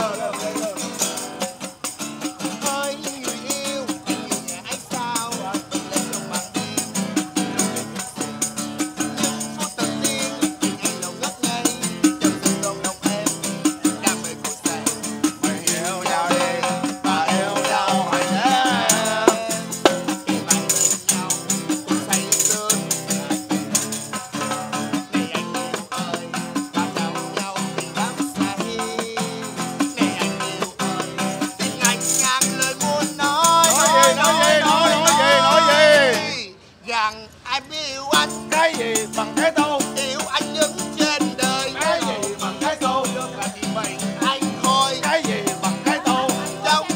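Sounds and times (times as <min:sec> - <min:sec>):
man singing: 0:00.0 - 0:01.6, 0:02.4 - 0:46.9
tambourine shaken and struck: 0:00.0 - 0:36.1, 0:38.1 - 0:46.9
strummed guitar chords: 0:14.6 - 0:25.3, 0:32.6 - 0:36.4.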